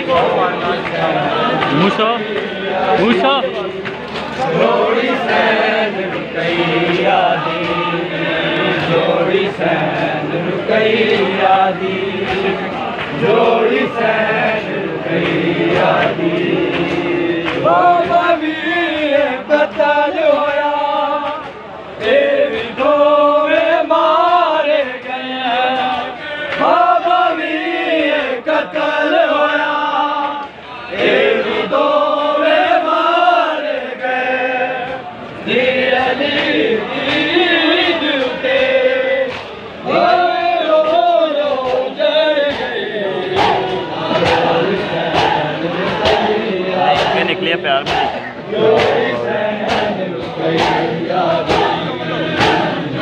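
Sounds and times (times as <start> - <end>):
men chanting a lament in unison: 0.0 - 53.0.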